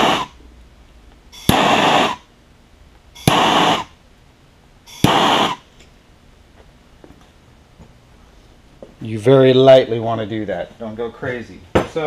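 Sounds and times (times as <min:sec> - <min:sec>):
torch flame hissing: 0:00.0 - 0:00.4, 0:01.4 - 0:02.3, 0:03.2 - 0:04.0, 0:04.9 - 0:05.7
gas torch ignition click: 0:01.4 - 0:02.2, 0:03.2 - 0:03.9, 0:04.9 - 0:05.6.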